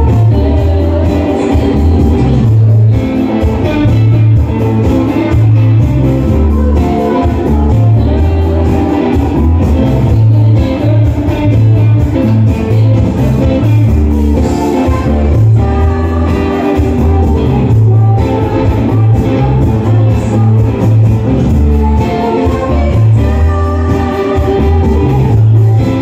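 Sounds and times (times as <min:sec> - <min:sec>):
electric bass line: 0:00.0 - 0:26.0
live rock band playing: 0:00.0 - 0:26.0
woman singing: 0:00.0 - 0:26.0.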